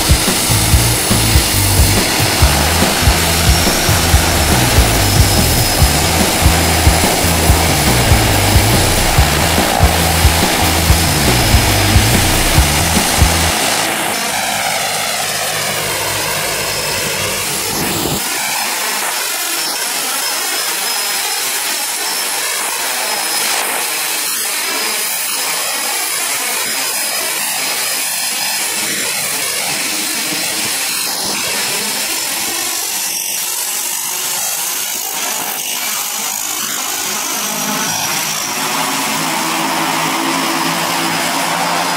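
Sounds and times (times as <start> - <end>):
deep rumble: 0.0 - 13.8
downward gliding tones: 0.0 - 18.6, 37.0 - 41.9
aircraft turbine engines running: 0.0 - 41.9.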